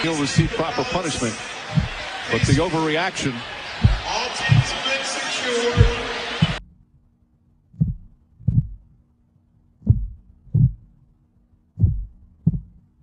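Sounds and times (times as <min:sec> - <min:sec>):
heartbeat thumps: 0:00.3 - 0:00.6, 0:01.7 - 0:02.8, 0:03.7 - 0:04.8, 0:05.7 - 0:06.6, 0:07.7 - 0:08.9, 0:09.8 - 0:10.9, 0:11.7 - 0:12.9.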